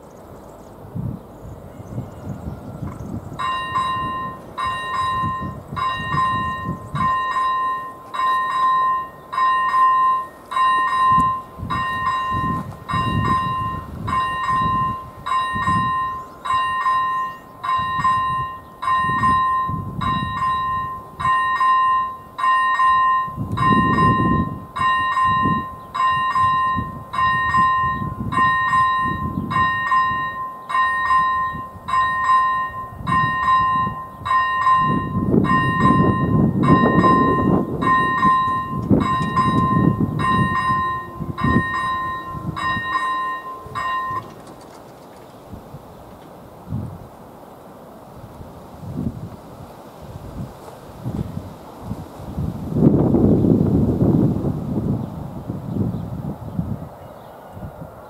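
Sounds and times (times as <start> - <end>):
level-crossing bell ringing: 3.4 - 44.4.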